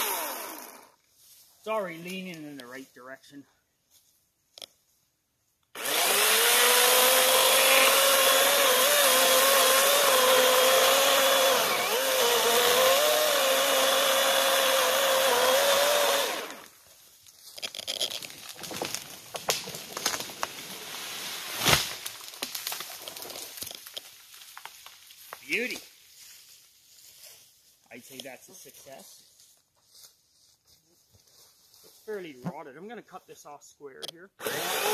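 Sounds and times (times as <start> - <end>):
battery chainsaw motor whine: 0.0 - 1.0, 5.8 - 16.7, 34.4 - 34.9
sharp wood crack: 17.5 - 20.8, 21.5 - 25.4
tree crackling and snapping: 17.6 - 25.5.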